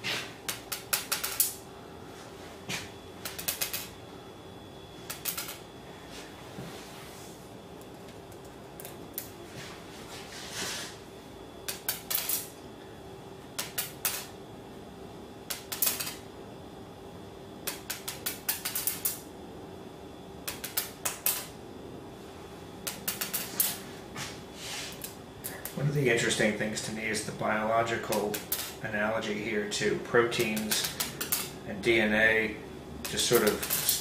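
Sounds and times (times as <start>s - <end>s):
faint steady hum: 0.0s - 34.0s
magnet balls clattering on stone: 33.1s - 34.0s.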